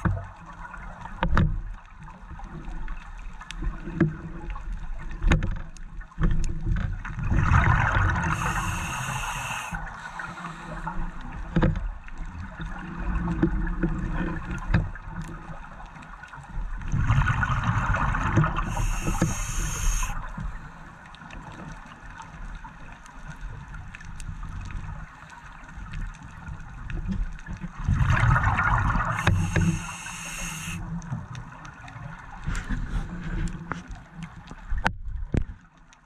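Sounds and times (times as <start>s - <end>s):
regulator inhalation hiss: 8.2s - 11.1s, 18.6s - 20.3s, 29.0s - 30.8s.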